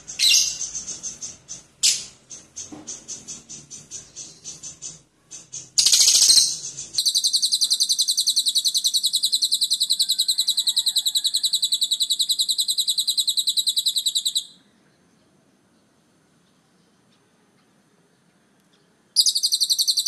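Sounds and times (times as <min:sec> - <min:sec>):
lovebird chattering trill: 0:00.0 - 0:14.6, 0:19.2 - 0:20.0.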